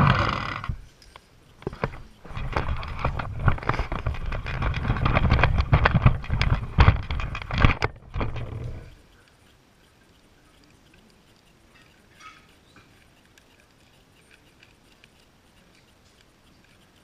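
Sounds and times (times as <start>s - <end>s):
toy truck rattling on floor: 1.6s - 8.9s.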